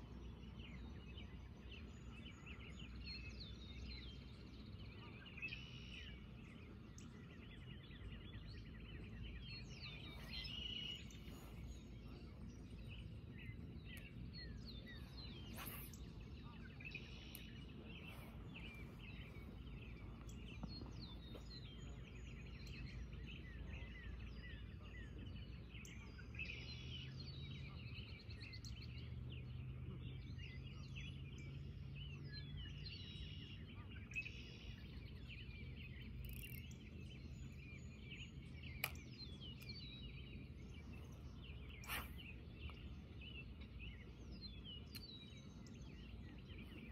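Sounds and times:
low hum: 0:00.0 - 0:24.9
birds chirping: 0:00.0 - 0:46.9
low steady rumble: 0:00.0 - 0:46.9.

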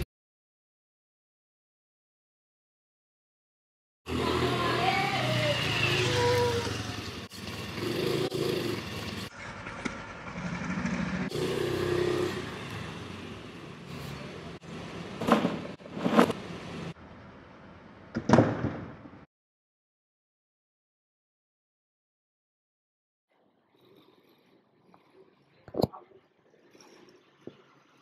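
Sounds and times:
voices: 0:04.1 - 0:07.1
scooter engine running: 0:04.1 - 0:13.7.

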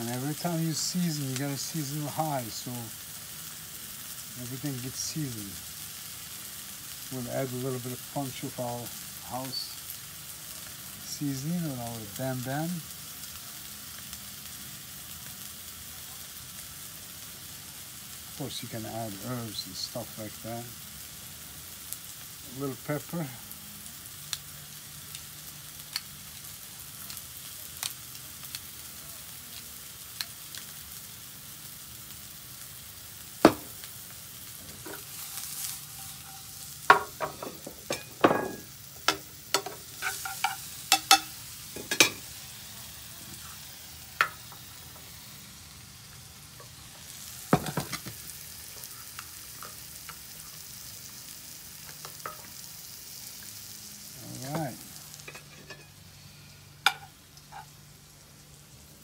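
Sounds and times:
mushrooms sizzling in a frying pan: 0:00.0 - 0:59.0
utensil clinking on pan: 0:35.8 - 0:42.2, 0:55.2 - 0:56.0.

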